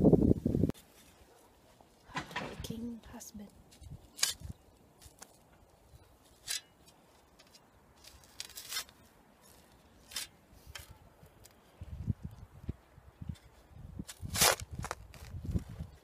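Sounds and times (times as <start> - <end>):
spade scraping into soil: 6.2 - 11.0.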